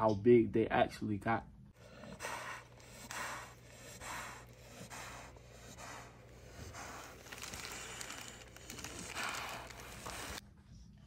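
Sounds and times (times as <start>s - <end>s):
rhythmic breathing: 1.7s - 10.4s.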